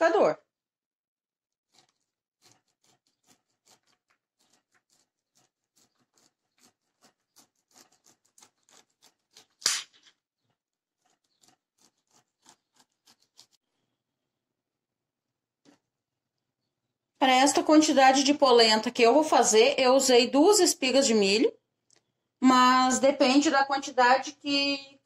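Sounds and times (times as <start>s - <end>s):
knife cutting corn on glass board: 1.6s - 13.7s.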